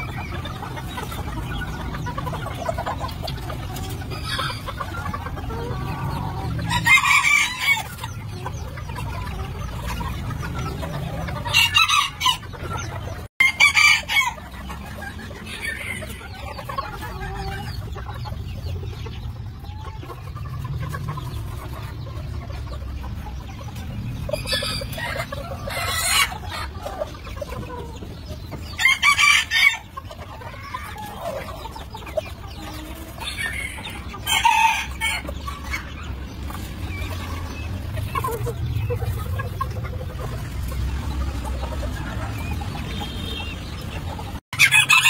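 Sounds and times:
chickens clucking: 0.0s - 45.0s
rooster crowing: 44.6s - 45.0s.

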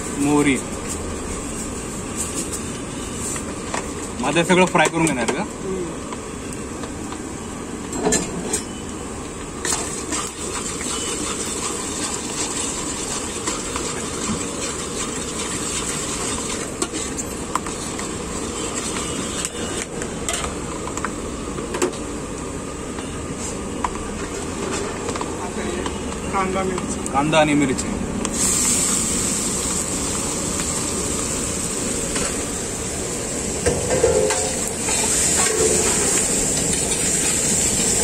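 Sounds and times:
spices sizzling in hot oil: 9.7s - 19.4s, 28.3s - 38.0s.

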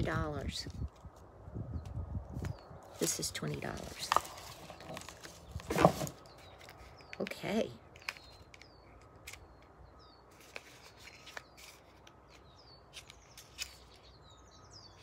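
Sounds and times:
bird chirping: 1.6s - 15.0s
cardboard box clicking and crackling: 3.7s - 7.3s.

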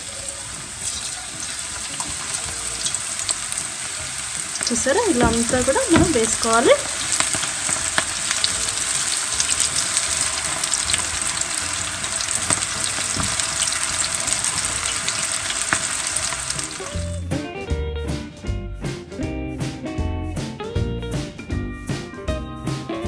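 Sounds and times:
batter sizzling in hot oil: 0.0s - 17.3s
plucked-string music: 4.2s - 8.0s.

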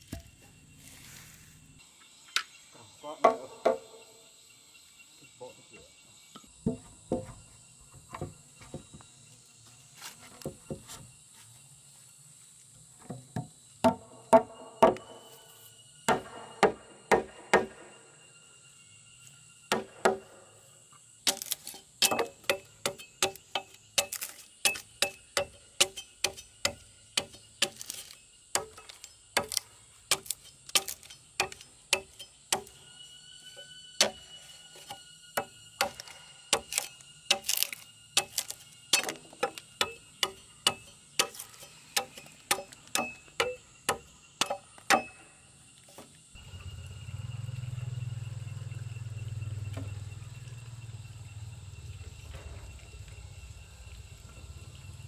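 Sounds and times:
bladed tool chopping log: 19.7s - 20.3s, 21.3s - 32.8s, 34.8s - 45.2s.

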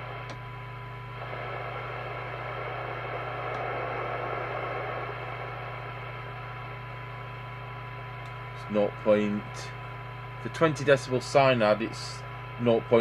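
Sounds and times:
low hum: 0.0s - 13.0s
radio receiver hiss: 0.0s - 13.0s
steady radio test tone: 0.0s - 13.0s.

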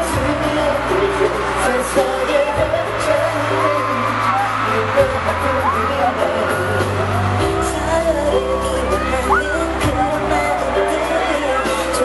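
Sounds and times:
crowd screaming and cheering: 0.0s - 12.0s
pop ballad over sound system: 0.0s - 12.0s.

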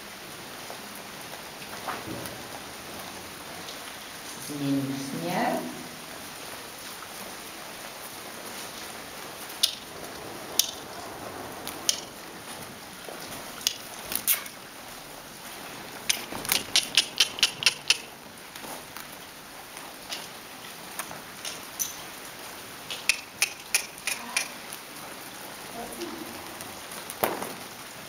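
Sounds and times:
sharp clicks: 16.1s - 18.1s, 22.9s - 24.6s.

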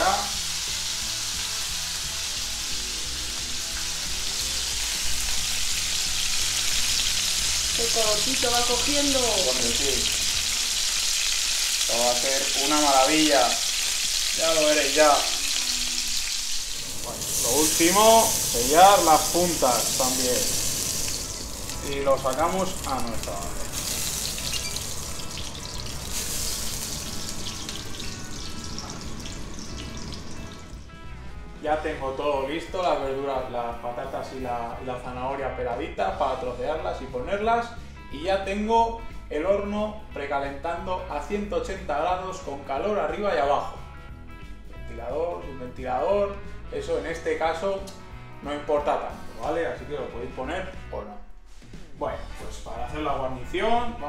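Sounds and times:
meat sizzling in oil: 0.0s - 30.9s.

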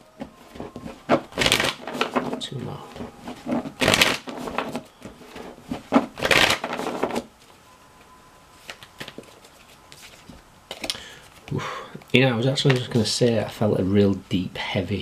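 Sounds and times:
cards being handled: 0.2s - 7.5s, 8.6s - 11.6s, 12.6s - 13.1s.

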